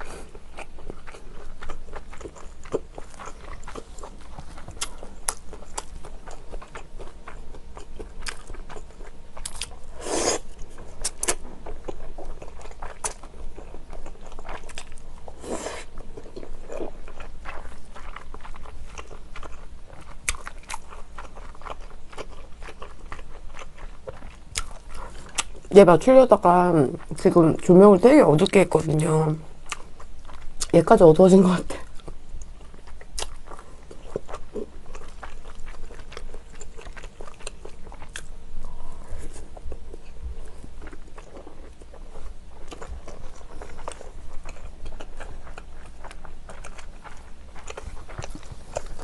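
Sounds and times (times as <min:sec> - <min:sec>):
person chewing: 0:00.0 - 0:25.7, 0:29.6 - 0:30.7, 0:31.8 - 0:49.0
person slurping noodles: 0:10.0 - 0:10.4.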